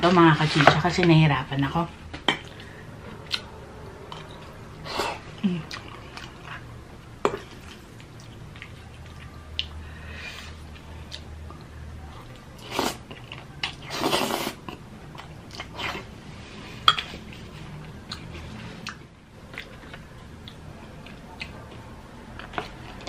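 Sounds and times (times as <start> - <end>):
mouth chewing food: 7.3 - 9.8, 17.0 - 23.0.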